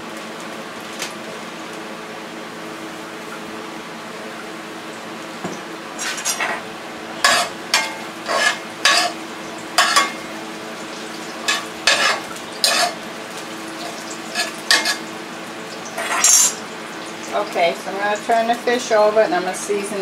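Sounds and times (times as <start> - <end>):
onions sizzling: 4.8 - 19.0
utensil scraping a frying pan: 6.0 - 10.3, 11.2 - 13.1, 13.7 - 15.2, 16.0 - 16.6.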